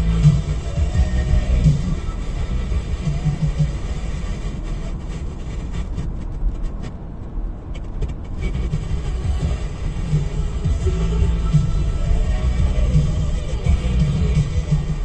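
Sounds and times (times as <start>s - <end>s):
tyre and road rumble in car: 0.0s - 15.0s.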